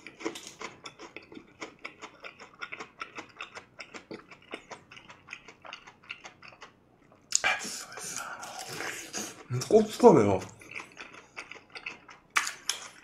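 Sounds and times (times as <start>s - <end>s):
chewing crispy fried chicken: 0.0s - 13.0s.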